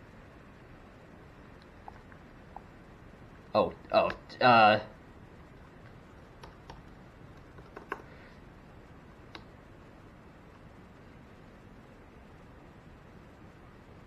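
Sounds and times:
faint computer fan hum: 0.0s - 14.0s
laptop keys and touchpad clicks: 6.4s - 8.1s.

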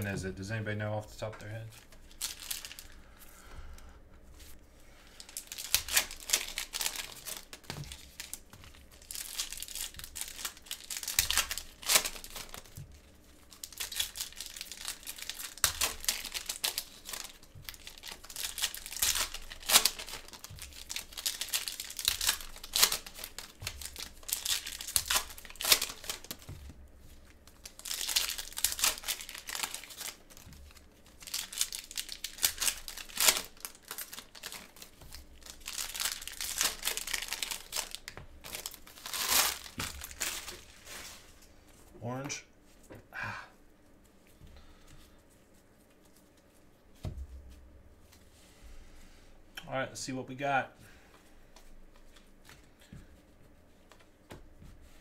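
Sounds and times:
plastic wrappers tearing and crinkling: 1.2s - 3.0s, 4.4s - 41.5s.

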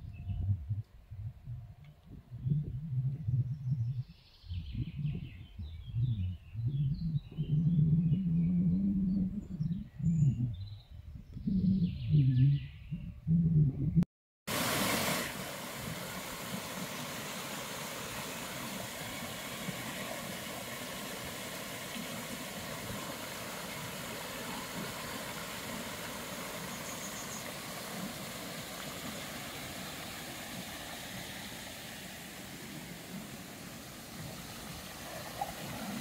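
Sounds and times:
water rushing over rocks: 14.5s - 36.0s.

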